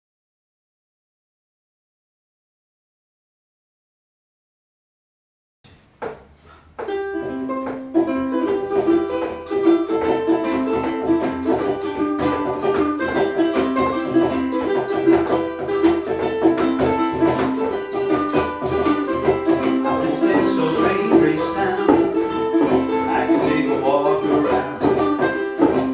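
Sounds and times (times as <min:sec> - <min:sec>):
ukuleles strumming: 0:05.7 - 0:25.9.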